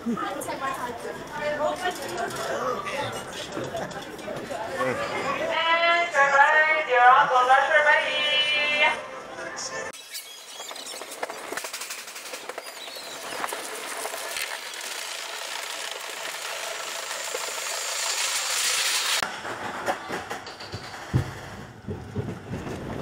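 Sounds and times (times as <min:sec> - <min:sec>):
roller coaster clattering on track: 0:10.8 - 0:18.0, 0:19.2 - 0:23.0.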